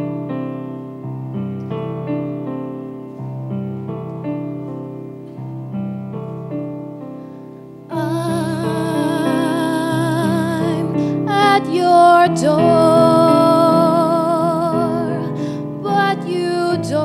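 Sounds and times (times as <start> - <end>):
piano playing chords: 0.0 - 17.0
woman singing with vibrato: 7.9 - 17.0.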